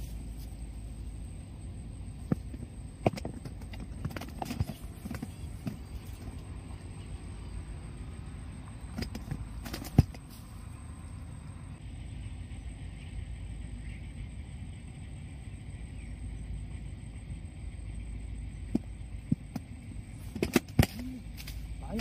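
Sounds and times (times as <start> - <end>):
sharp clicks and knocks: 2.2 - 6.4, 8.9 - 10.3.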